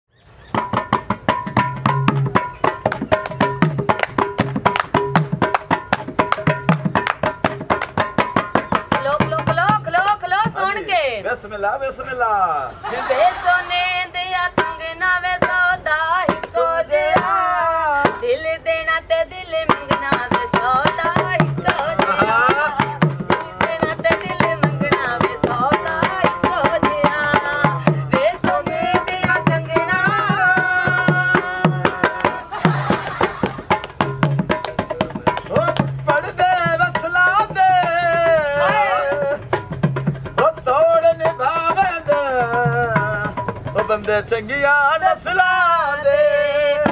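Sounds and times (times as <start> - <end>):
fast hand drum beat: 0.5 - 10.8, 19.6 - 44.3.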